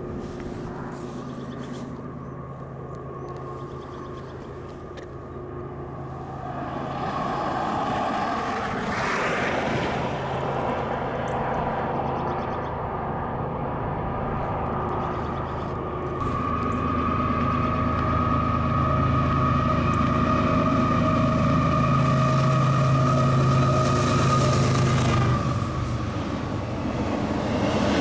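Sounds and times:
locomotive engine drone: 0:00.0 - 0:28.0
rushing noise: 0:06.0 - 0:11.2, 0:15.8 - 0:28.0.

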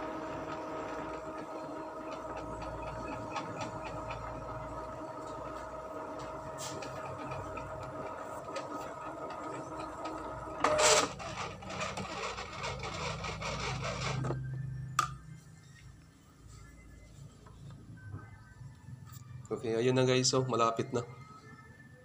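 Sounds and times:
inkjet printer mechanism running: 0:00.0 - 0:14.4
printer clatter: 0:00.1 - 0:14.4.

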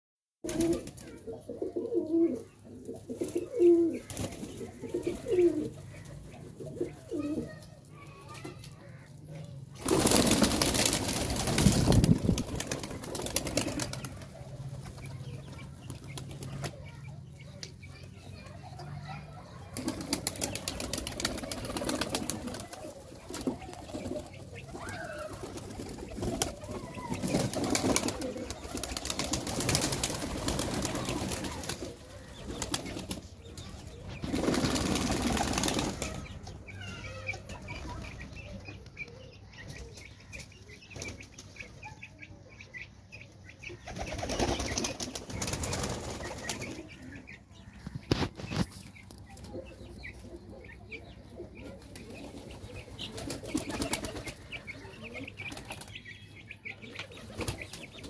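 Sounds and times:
pigeons flapping wings: 0:00.4 - 0:01.1, 0:09.8 - 0:15.2, 0:19.7 - 0:36.4, 0:43.9 - 0:46.8, 0:53.0 - 0:54.5.

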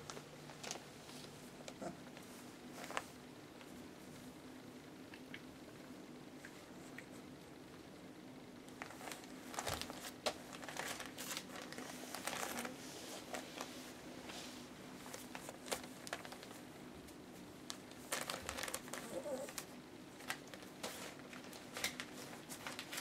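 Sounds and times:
newspaper crinkling and rustling: 0:00.0 - 0:01.4, 0:08.7 - 0:23.0
faint steady hum: 0:00.0 - 0:23.0.

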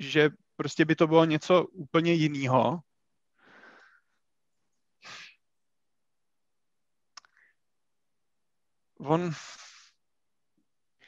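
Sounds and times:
short breath: 0:03.4 - 0:04.2, 0:05.0 - 0:05.4
mouth click: 0:07.2 - 0:07.4.

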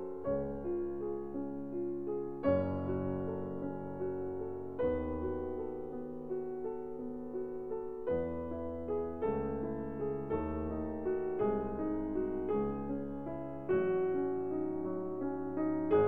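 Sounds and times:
piano chords: 0:00.0 - 0:16.0.

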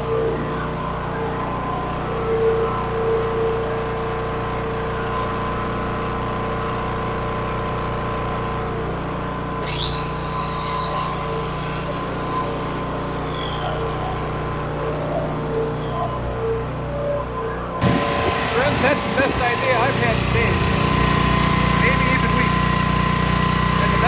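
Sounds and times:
generator engine running: 0:00.0 - 0:24.0
high-pitched hiss: 0:09.6 - 0:13.3.

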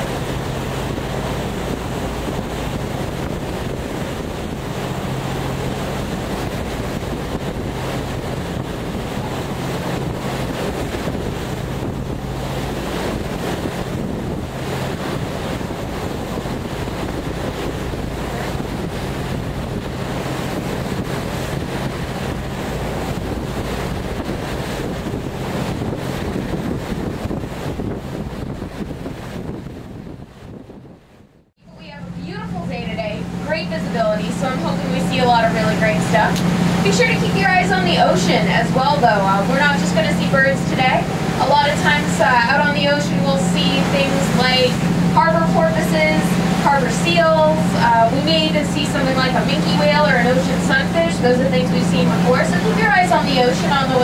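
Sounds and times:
boat engine drone: 0:00.0 - 0:54.0
water rushing along hull: 0:00.0 - 0:54.0
wind buffeting microphone: 0:00.0 - 0:54.0.

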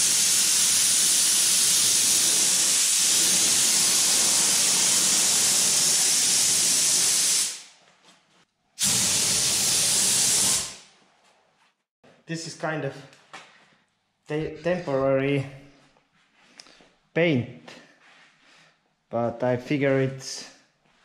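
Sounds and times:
paint spray gun hissing: 0:00.0 - 0:07.7, 0:08.8 - 0:10.8.

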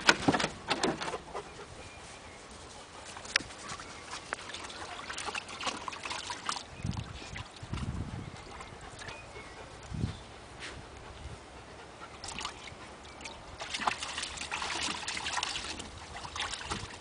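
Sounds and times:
dog splashing in water: 0:03.7 - 0:07.6, 0:12.2 - 0:17.0.

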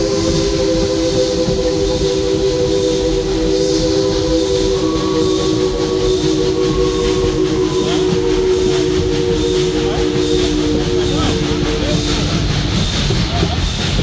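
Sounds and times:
low rumble of train running: 0:00.0 - 0:14.0
steam locomotive chime whistle: 0:00.0 - 0:14.0.

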